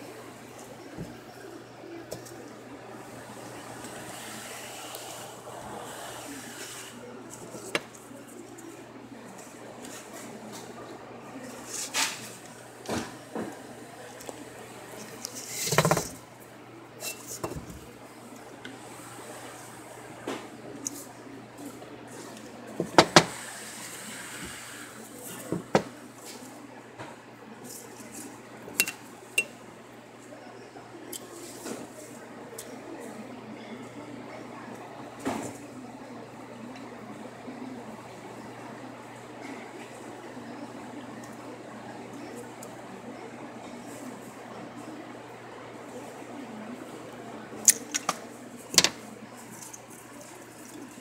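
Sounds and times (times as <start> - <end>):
metal tools knocking on table: 15.6 - 16.2.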